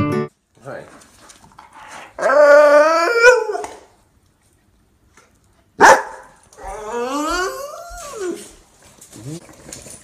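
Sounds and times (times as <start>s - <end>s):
puppy howling: 2.2s - 3.9s, 6.6s - 8.6s
puppy barking: 5.8s - 6.7s.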